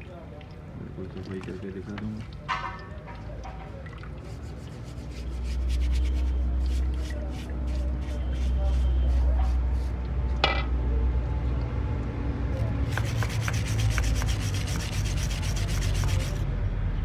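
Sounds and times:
scrub brush scratching metal fins: 4.2s - 10.0s, 12.6s - 16.4s.

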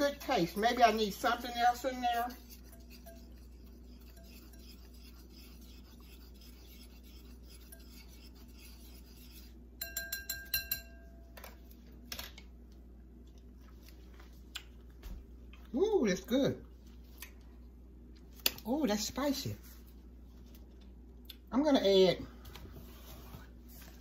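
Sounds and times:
spoon stirring in a bowl: 0.1s - 11.7s.

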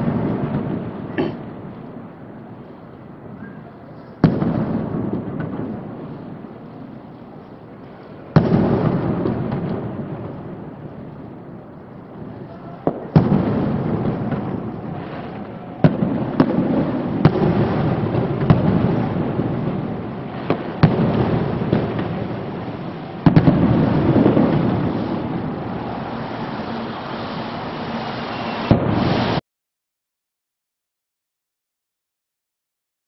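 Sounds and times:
firework shells bursting: 12.8s - 29.4s.

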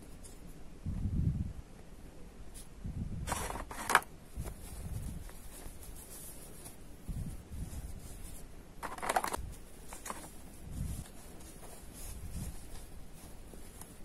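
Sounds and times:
cloth pouch rustling: 3.3s - 14.0s.

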